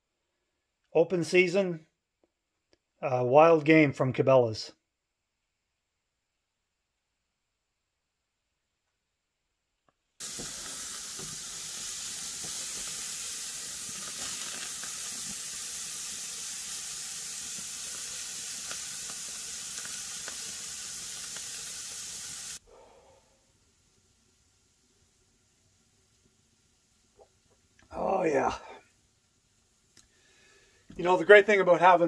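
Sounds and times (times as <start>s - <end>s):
steak sizzling on grill: 10.2s - 31.3s.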